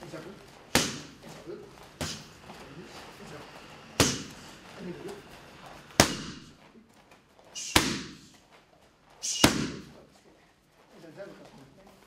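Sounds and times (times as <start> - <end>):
strikes smacking leather pads: 0.7 - 1.2, 4.0 - 4.3, 6.0 - 6.5, 7.6 - 8.3, 9.3 - 9.9.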